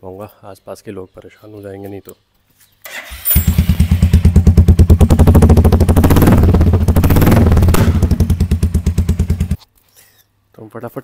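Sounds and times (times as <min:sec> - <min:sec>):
motorcycle engine idling loudly: 0:03.4 - 0:09.6.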